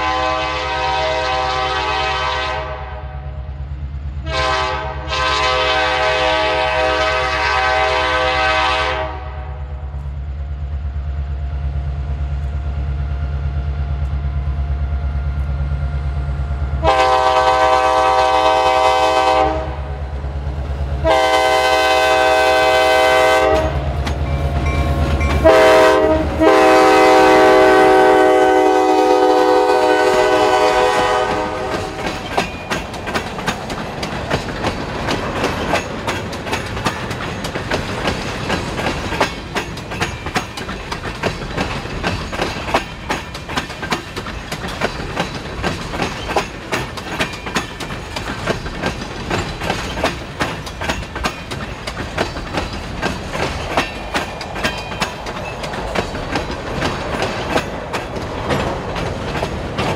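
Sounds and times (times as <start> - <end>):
locomotive air horn blasts: 0.0 - 3.5, 4.2 - 9.8, 16.8 - 20.0, 21.0 - 23.9, 25.3 - 32.0
locomotive engine drone: 9.5 - 59.9
train wheels clacking over rail joints: 16.8 - 59.9.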